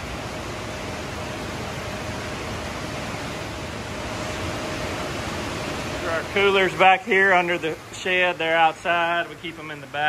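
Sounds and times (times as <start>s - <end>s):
faint constant hum: 0.0s - 10.0s.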